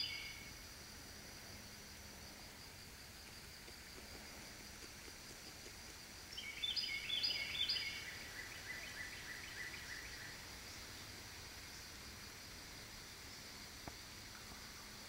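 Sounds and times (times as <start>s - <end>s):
songbird singing: 0.0s - 0.6s, 3.2s - 15.0s
faint outdoor hiss: 0.0s - 15.0s.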